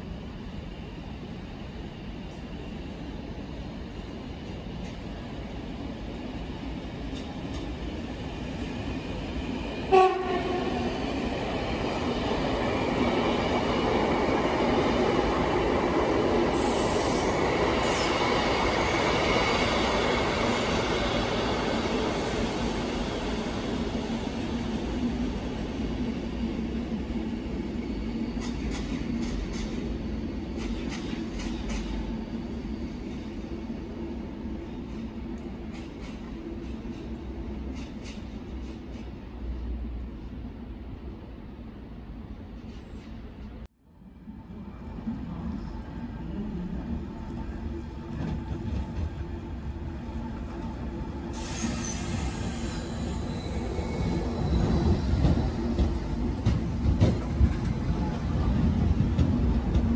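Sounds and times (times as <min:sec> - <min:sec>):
electric train passing: 0:00.0 - 0:42.0, 0:43.9 - 0:59.9
train horn blast: 0:09.9 - 0:10.9.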